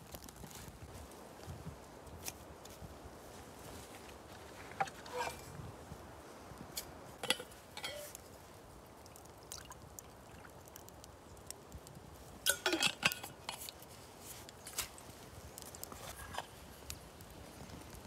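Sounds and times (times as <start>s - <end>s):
water trickling into metal pot: 7.2s - 8.2s, 9.0s - 10.9s, 12.4s - 13.7s.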